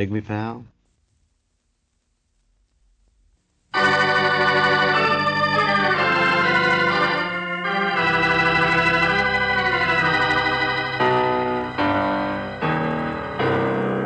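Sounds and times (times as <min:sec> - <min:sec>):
sustained organ chords: 0:03.7 - 0:14.0.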